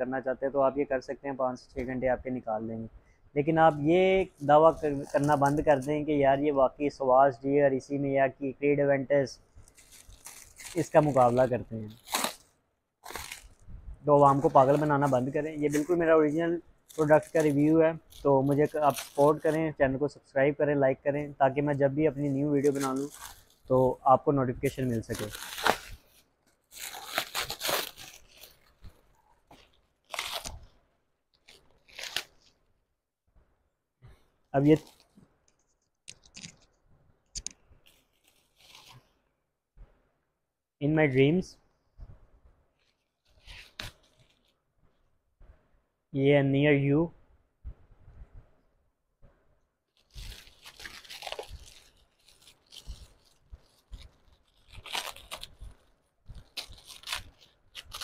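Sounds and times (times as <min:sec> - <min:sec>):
plastic wrapping tearing and crinkling: 0:04.4 - 0:05.9, 0:09.6 - 0:13.6, 0:14.2 - 0:19.6, 0:22.4 - 0:23.7, 0:24.6 - 0:30.7, 0:31.3 - 0:32.6, 0:34.6 - 0:35.2, 0:37.8 - 0:39.1, 0:42.8 - 0:44.6, 0:49.9 - 0:58.0.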